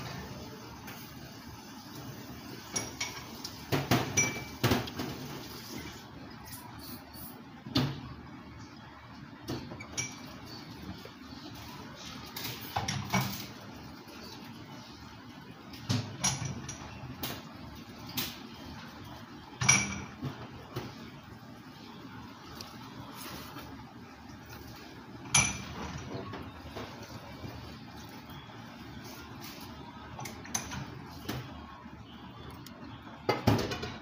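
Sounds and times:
room noise: 0.0 - 34.0
ceramic tableware clinking: 4.0 - 4.6, 25.3 - 25.9.

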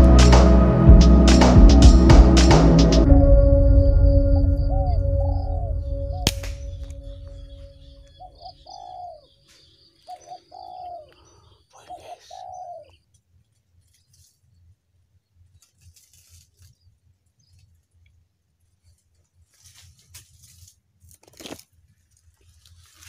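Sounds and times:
dove cooing: 8.1 - 9.4, 10.1 - 13.0.

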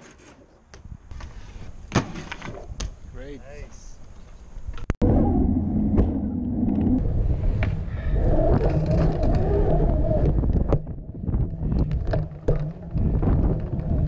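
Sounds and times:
bike tyres rumbling on concrete: 6.0 - 14.0.

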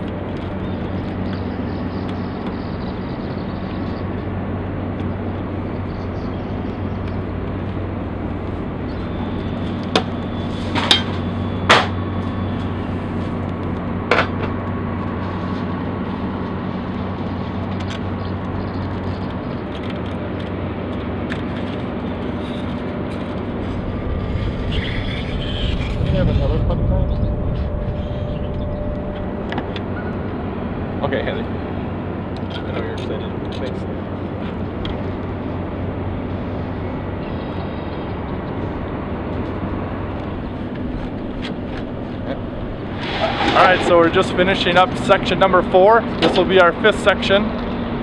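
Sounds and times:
low machine hum: 0.0 - 48.0.

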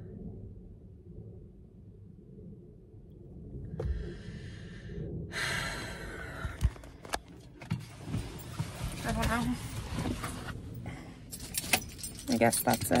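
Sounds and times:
person breathing heavily: 3.8 - 7.0.

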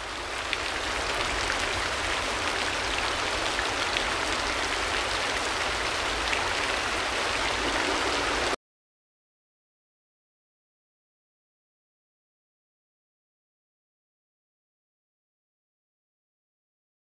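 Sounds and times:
steady rain falling: 0.0 - 8.6.

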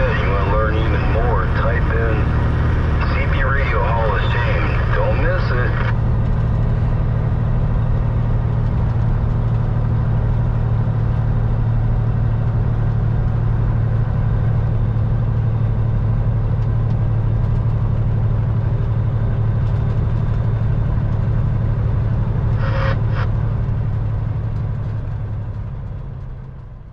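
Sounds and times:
radio static burst: 0.0 - 2.4, 3.0 - 6.0, 22.5 - 23.3
diesel truck engine drone: 0.0 - 26.9
road noise: 0.0 - 26.9.

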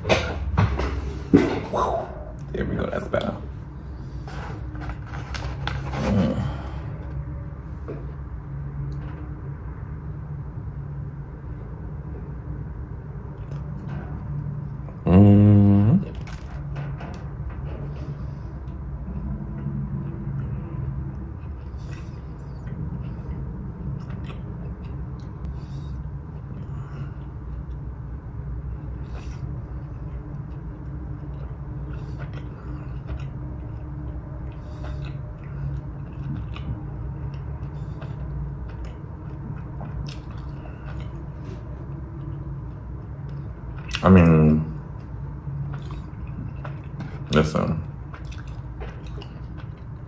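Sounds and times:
steady low hum: 0.0 - 50.0
person chewing a burger: 16.0 - 44.1, 44.8 - 50.0.

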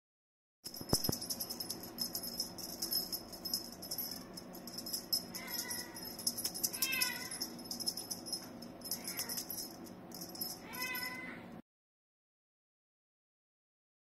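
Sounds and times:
high jingling rattle: 0.7 - 11.2
kitten meowing: 5.3 - 6.1, 6.7 - 7.4, 10.6 - 11.4.

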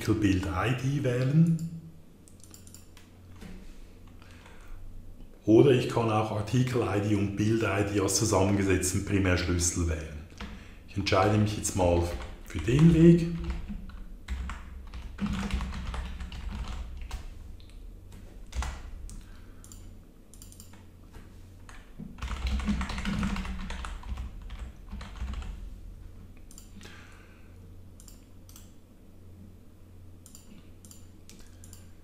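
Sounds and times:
keyboard typing: 2.3 - 3.0, 12.0 - 20.9, 21.6 - 25.6, 28.0 - 28.8, 30.2 - 31.9.

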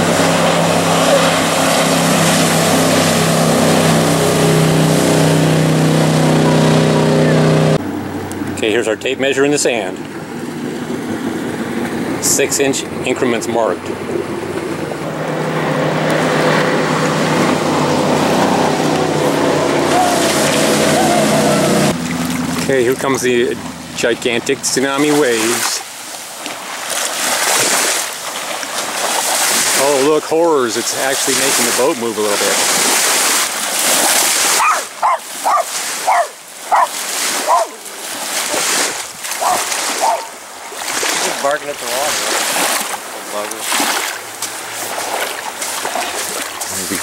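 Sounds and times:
waves washing onto sand: 0.0 - 8.4, 10.1 - 23.5, 24.2 - 47.0
jet boat engine running: 0.0 - 47.0
dog barking: 34.5 - 37.8, 39.4 - 40.4.

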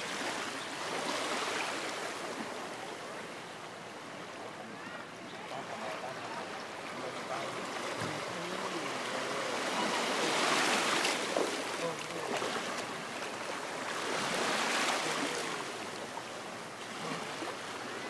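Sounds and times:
sea water washing and lapping: 0.0 - 3.3, 5.4 - 18.0.

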